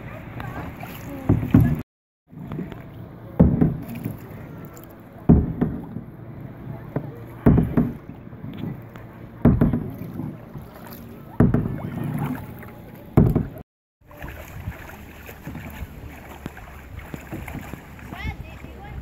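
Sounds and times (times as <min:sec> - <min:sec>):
paddle swishing in water: 0:00.0 - 0:19.0
water washing: 0:00.0 - 0:19.0
wind on microphone: 0:13.2 - 0:19.0.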